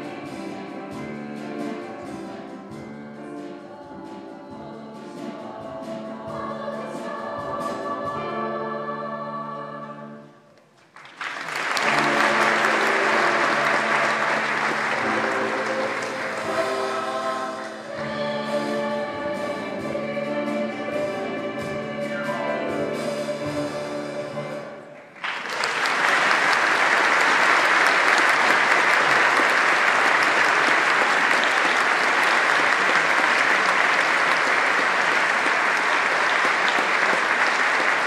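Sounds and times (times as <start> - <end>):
group singing with instruments: 0.0 - 10.4, 11.8 - 25.1
audience applause: 10.8 - 17.8, 25.0 - 38.0.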